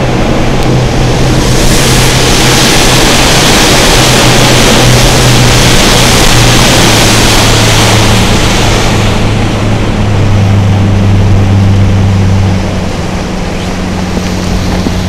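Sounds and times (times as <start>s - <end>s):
boat engine humming: 0.0s - 15.0s
rushing hiss of water and air: 0.0s - 15.0s.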